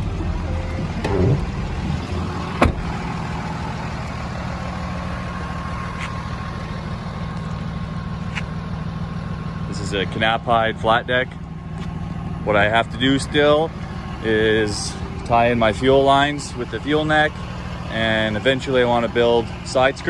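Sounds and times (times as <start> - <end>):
diesel engine idling with whine: 0.0 - 20.0.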